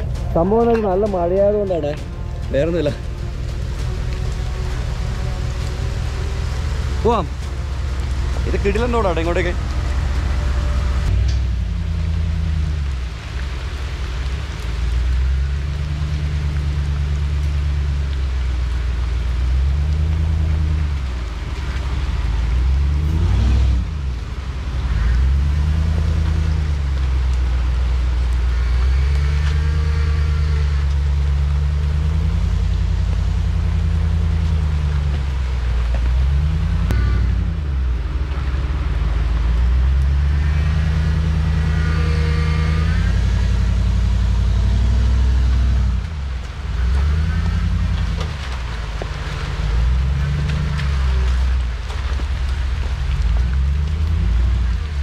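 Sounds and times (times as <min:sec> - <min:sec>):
pickup truck engine revving: 0:19.3 - 0:55.0.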